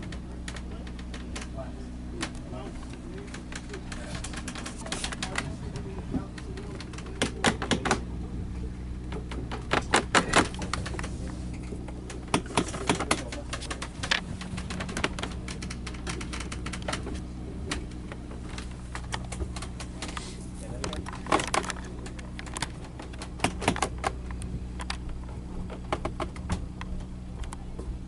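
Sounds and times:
steady low hum: 0:00.0 - 0:28.0
paper crinkling: 0:02.9 - 0:05.4.

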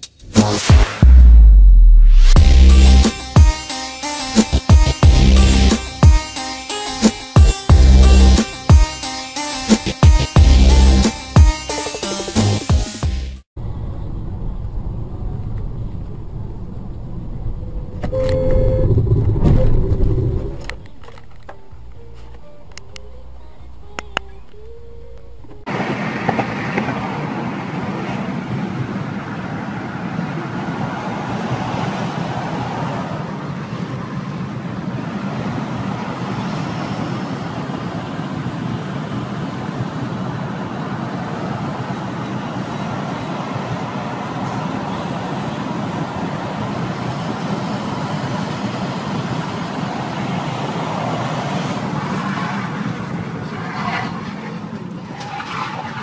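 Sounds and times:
car driving road noise: 0:13.6 - 0:56.0.

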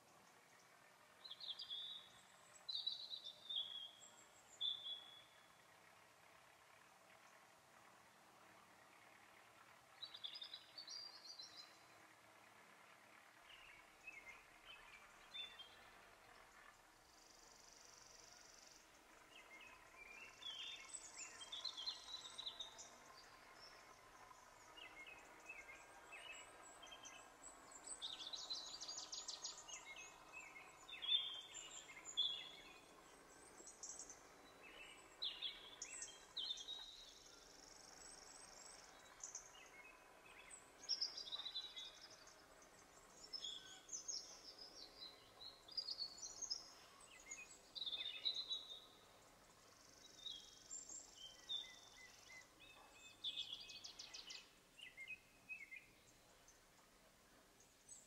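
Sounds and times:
birds chirping and trilling: 0:17.2 - 0:56.6.

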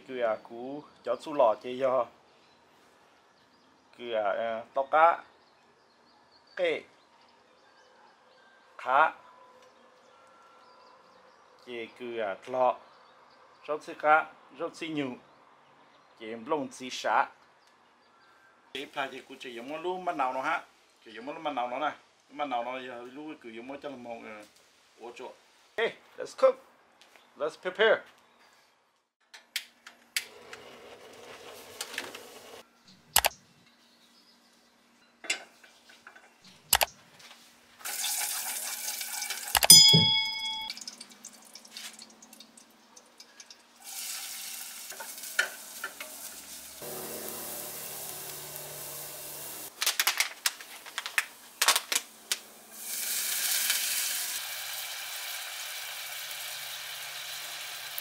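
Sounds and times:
food sizzling in a pan: 0:37.8 - 0:39.5, 0:43.8 - 0:49.8, 0:52.4 - 0:58.0
ringing metal clang: 0:39.6 - 0:40.9
utensils knocking and clinking: 0:39.6 - 0:40.9.

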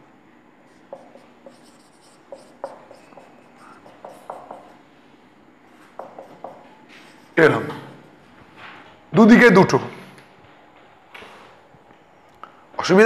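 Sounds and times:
marker squeaking on whiteboard: 0:00.7 - 0:04.8, 0:05.8 - 0:08.0.

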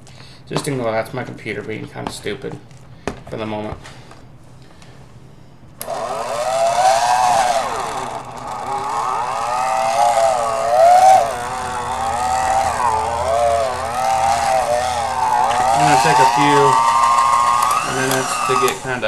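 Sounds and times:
steady low hum: 0:04.0 - 0:19.0
hand mixer motor whining: 0:05.8 - 0:19.0.

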